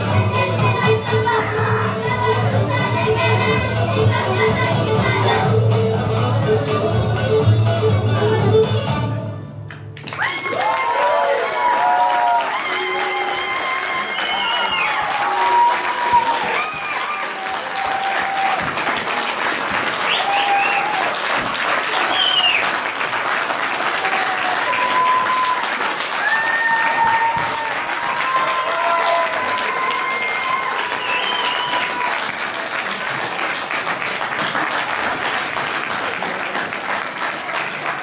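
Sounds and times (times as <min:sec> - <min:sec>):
audience applauding: 0:10.0 - 0:38.0.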